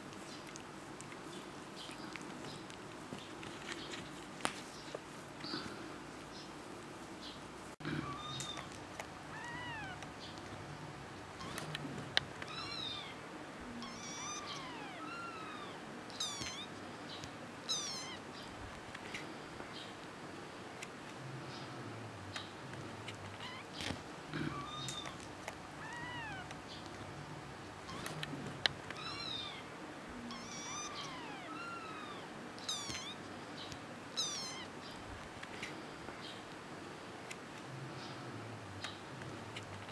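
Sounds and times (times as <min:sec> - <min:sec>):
kitten mewing: 0:07.8 - 0:10.1, 0:11.4 - 0:16.7, 0:17.7 - 0:18.2, 0:23.3 - 0:26.6, 0:27.8 - 0:33.2, 0:34.2 - 0:34.7.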